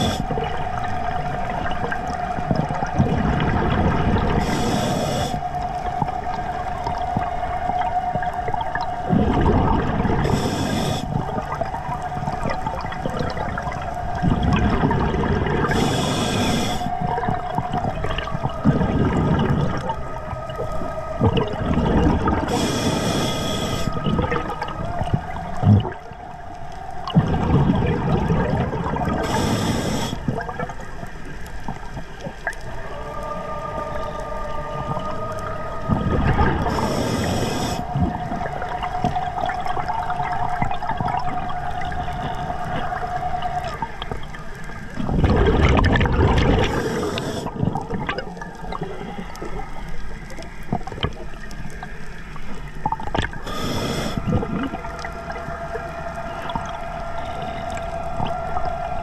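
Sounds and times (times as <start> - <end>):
regulator inhalation hiss: 0.0 - 0.5, 4.3 - 5.7, 10.2 - 11.3, 15.6 - 17.0, 22.4 - 24.1, 29.1 - 30.3, 36.6 - 38.1, 46.6 - 47.6, 53.4 - 55.1
exhaled bubbles rumbling: 0.0 - 59.0
steady whine: 0.0 - 59.0.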